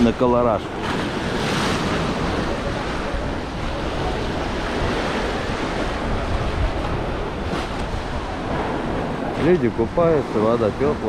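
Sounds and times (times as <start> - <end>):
wind rumbling on microphone: 0.0 - 11.0.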